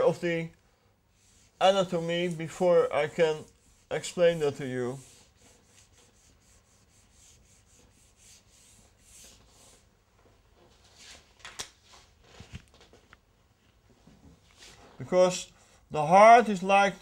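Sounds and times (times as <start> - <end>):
eraser rubbing on whiteboard: 1.2 - 2.1, 3.2 - 9.9.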